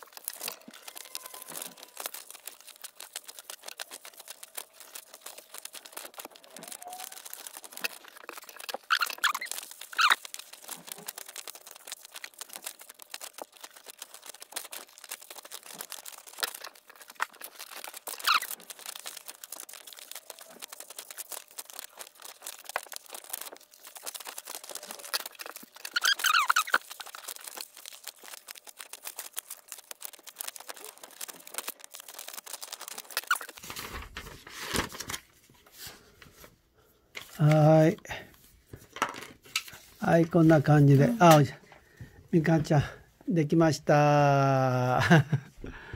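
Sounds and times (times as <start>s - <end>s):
scissors snipping paper: 0.0s - 33.7s
paper rustling: 0.0s - 42.8s
paper sheet crinkling: 0.0s - 45.6s.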